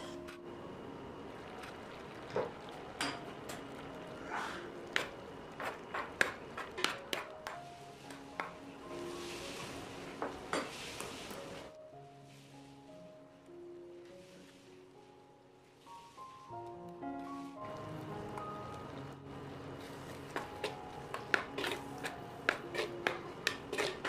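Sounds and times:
soft background music: 0.0 - 24.0
sizzling hiss: 7.5 - 18.5.

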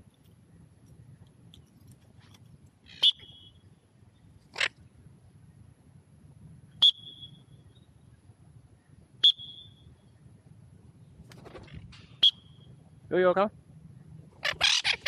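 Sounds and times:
parrot wings fluttering: 11.2 - 12.1
parrot chirping: 14.4 - 15.0.

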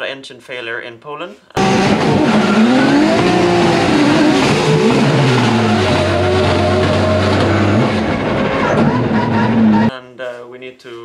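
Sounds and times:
car engine revving: 1.6 - 9.9.

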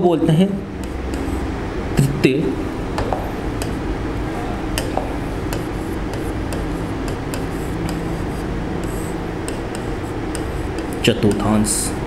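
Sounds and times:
background hiss and hum: 0.0 - 12.0
chalk scratching on blackboard: 0.8 - 2.2, 3.6 - 3.9, 4.7 - 11.6.

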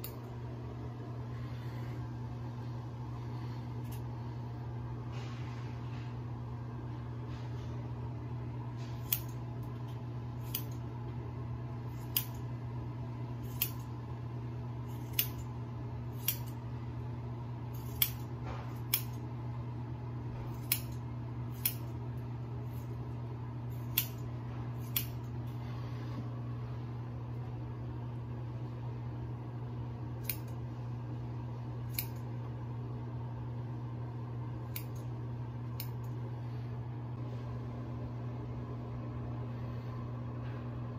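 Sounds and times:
scissors snipping hair: 0.0 - 0.3, 3.8 - 4.1, 9.0 - 10.9, 11.9 - 12.5, 13.4 - 13.9, 14.9 - 15.5, 16.1 - 16.6, 17.7 - 19.2, 20.5 - 22.0, 23.7 - 25.4, 30.2 - 30.6, 31.8 - 32.3, 34.6 - 35.1, 35.7 - 36.2
low hum: 0.0 - 40.9.

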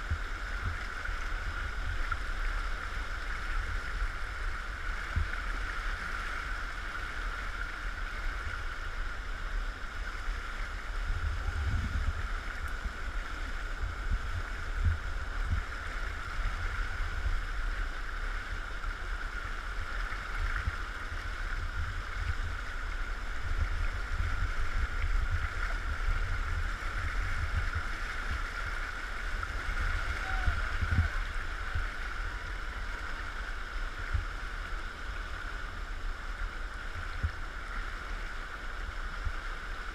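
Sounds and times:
motorboat engine running: 0.0 - 39.9
water rushing past hull: 0.0 - 39.9
wind buffeting microphone: 10.7 - 17.8, 20.5 - 33.4.

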